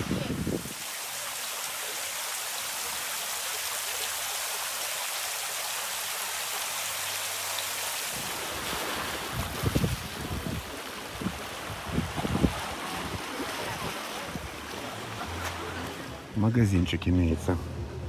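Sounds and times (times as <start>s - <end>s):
wind buffeting microphone: 0.0s - 0.8s, 8.1s - 14.6s
surf washing on shore: 0.0s - 4.2s, 6.4s - 16.4s.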